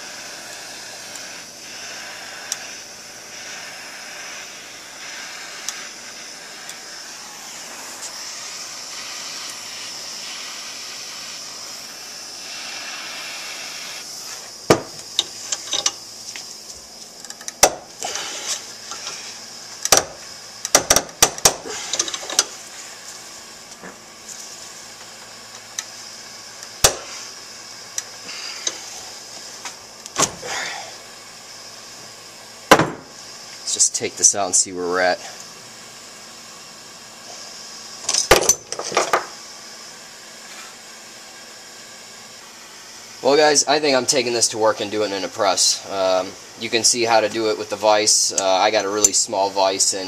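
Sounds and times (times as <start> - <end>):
steady hiss: 0.0 - 50.0
metal clanks and clicks of vise: 15.2 - 16.0.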